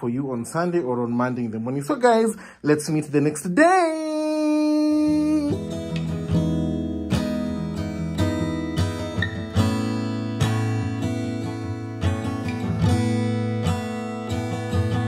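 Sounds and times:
strummed acoustic guitar music: 0:03.7 - 0:15.0.

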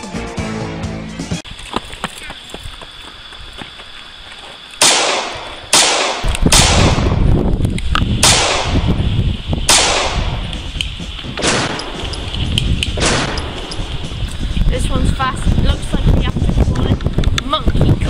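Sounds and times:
gunshots with ringing tail: 0:04.8 - 0:07.3, 0:08.2 - 0:09.0, 0:09.7 - 0:10.4, 0:11.4 - 0:12.2, 0:13.0 - 0:14.1
low rumble: 0:06.2 - 0:18.0.

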